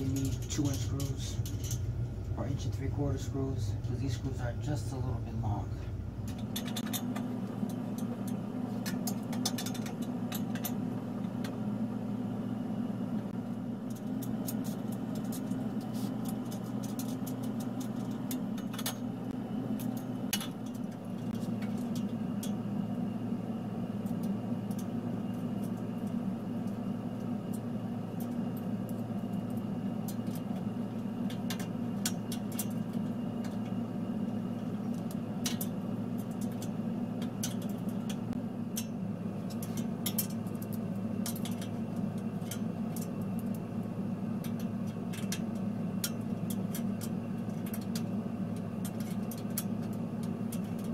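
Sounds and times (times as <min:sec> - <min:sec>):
small metal parts clicking and tapping: 0:00.0 - 0:01.9, 0:06.2 - 0:11.6, 0:13.8 - 0:22.6, 0:24.0 - 0:50.9
steady low hum: 0:00.0 - 0:50.9.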